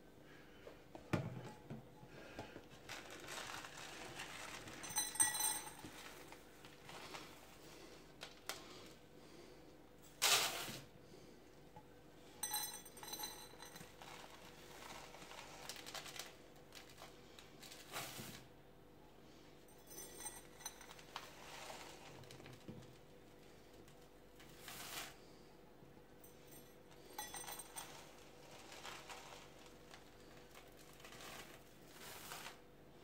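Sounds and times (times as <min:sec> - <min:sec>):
metal cup scooping cereal flakes: 0:02.8 - 0:07.4, 0:12.4 - 0:17.0, 0:19.9 - 0:22.4, 0:24.4 - 0:25.2, 0:27.1 - 0:32.6.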